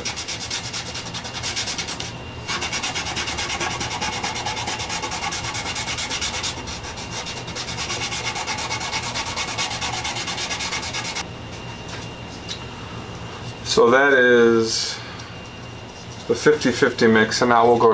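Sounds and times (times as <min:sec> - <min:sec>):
applicator rubbing on wood: 0:00.0 - 0:11.2.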